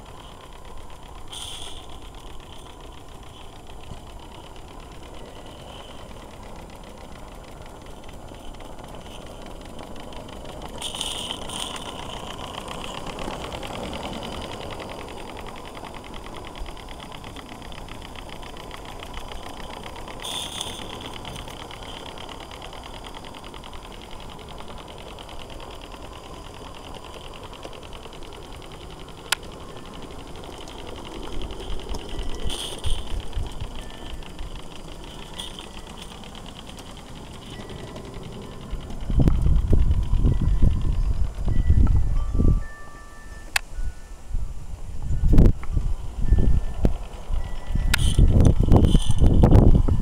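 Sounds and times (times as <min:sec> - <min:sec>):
steam locomotive exhaust beats: 0:00.0 - 0:50.0
steam hiss: 0:01.2 - 0:38.0.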